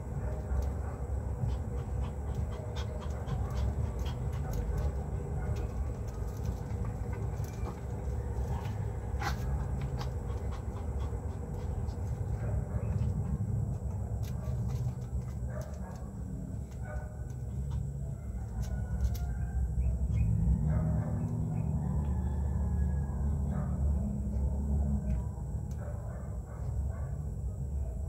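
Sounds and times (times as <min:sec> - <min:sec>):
dogs playing: 0:00.0 - 0:22.1.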